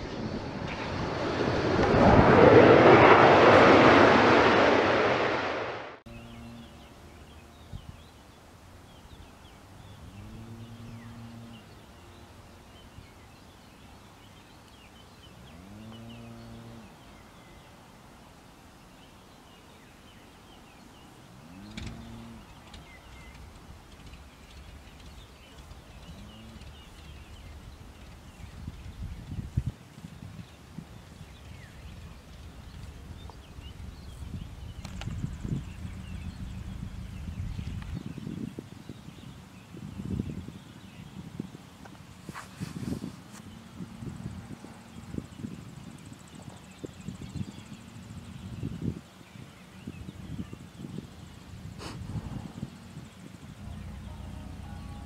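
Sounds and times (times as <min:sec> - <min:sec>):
loud rushing noise: 0:00.0 - 0:06.0.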